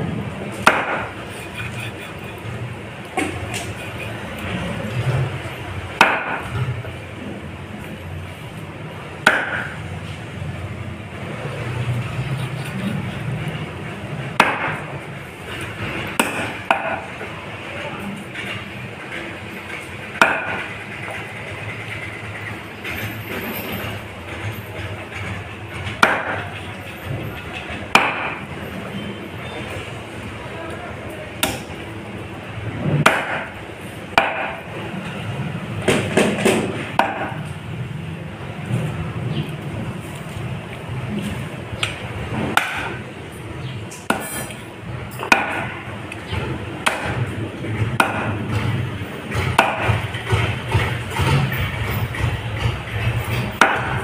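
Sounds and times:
cleaver chopping fish: 0:00.6 - 0:01.2, 0:06.0 - 0:06.5, 0:09.2 - 0:09.8, 0:14.4 - 0:14.9, 0:16.2 - 0:17.1, 0:20.2 - 0:20.6, 0:26.0 - 0:26.4, 0:27.9 - 0:28.4, 0:31.4 - 0:31.7, 0:33.0 - 0:33.5, 0:34.2 - 0:34.6, 0:35.9 - 0:37.4, 0:42.5 - 0:43.0, 0:44.0 - 0:44.6, 0:45.2 - 0:47.3, 0:47.9 - 0:48.6, 0:49.3 - 0:50.4, 0:53.6 - 0:54.0.

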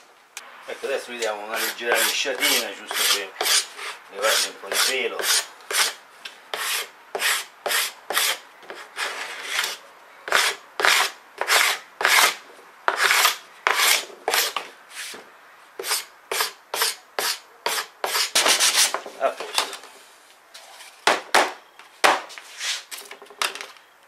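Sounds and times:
hand tool scraping wood: 0:00.7 - 0:15.2, 0:15.8 - 0:19.6.

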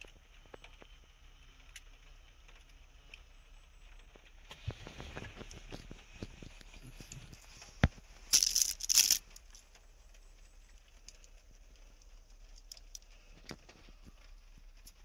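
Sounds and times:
plastic sheeting crinkling: 0:04.4 - 0:15.0.

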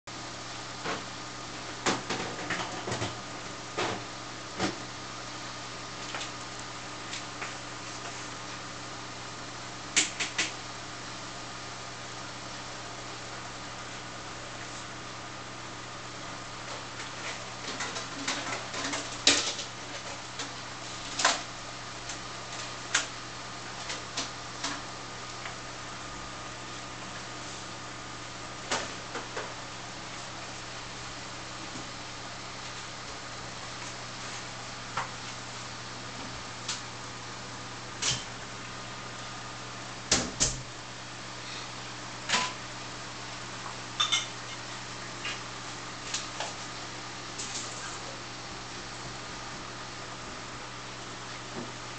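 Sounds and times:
aquarium filter pump humming: 0:00.1 - 0:51.9.

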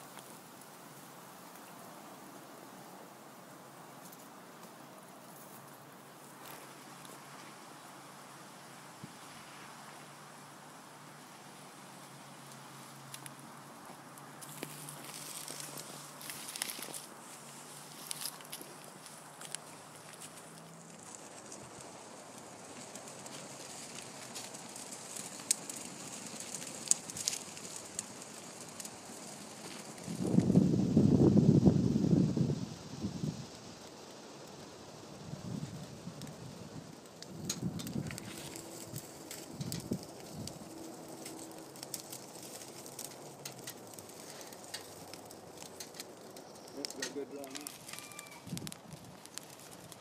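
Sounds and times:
twigs snapping and crackling: 0:12.5 - 0:30.5, 0:37.0 - 0:50.0
wind gust on microphone: 0:30.0 - 0:33.6.

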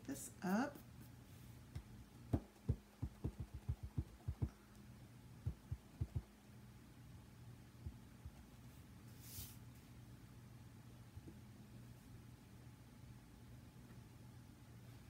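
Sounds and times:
stamp tapping on ink pad: 0:02.3 - 0:04.5.

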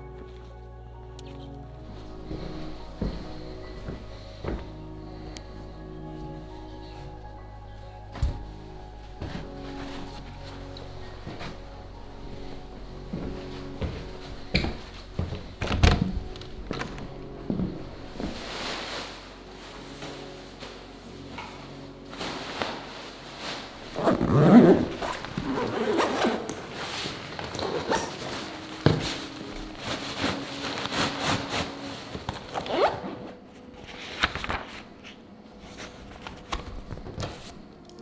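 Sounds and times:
nylon gear rustling: 0:00.0 - 0:38.0
paper pages leafed: 0:18.1 - 0:38.0
zippers drawn: 0:23.9 - 0:28.7, 0:32.5 - 0:33.4.

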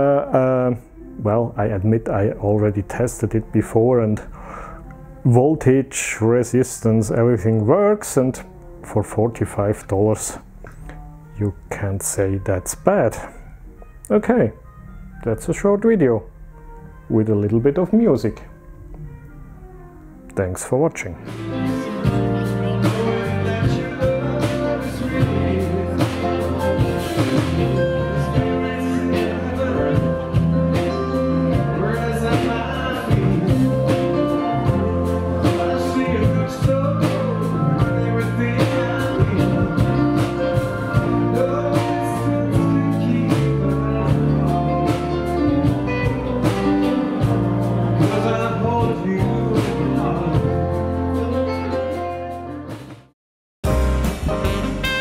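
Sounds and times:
person singing: 0:00.0 - 0:10.2, 0:21.2 - 0:52.0
keyboards: 0:00.0 - 0:55.0
electric guitars: 0:21.2 - 0:52.8
drums: 0:21.2 - 0:55.0.

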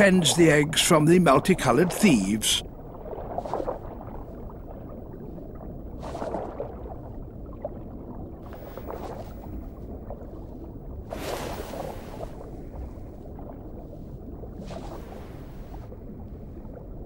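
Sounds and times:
low underwater rumble: 0:00.0 - 0:17.0
water bubbling and swirling: 0:00.0 - 0:17.0.

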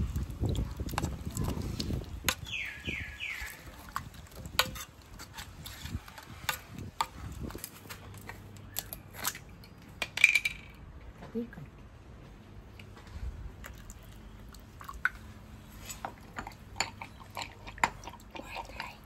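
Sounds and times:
squelching of thick paste: 0:00.0 - 0:08.0.

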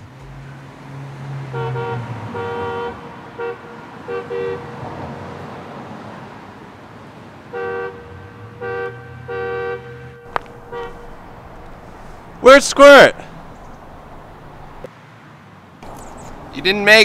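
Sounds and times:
car horn honking: 0:01.4 - 0:04.9, 0:07.5 - 0:13.5.

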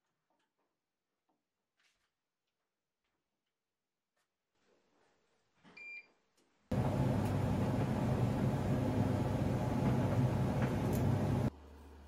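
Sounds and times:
dryer motor humming: 0:06.7 - 0:12.0.

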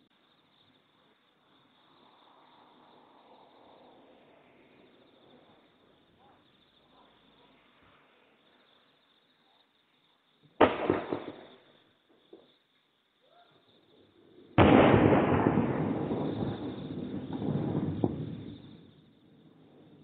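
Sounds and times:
distant firework bangs: 0:10.5 - 0:12.6, 0:14.6 - 0:20.0.

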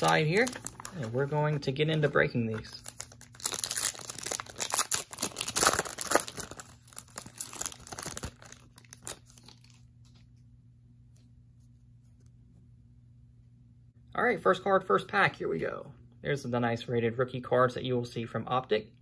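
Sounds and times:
wrapper tearing and crumpling: 0:00.0 - 0:01.2, 0:02.6 - 0:09.9.

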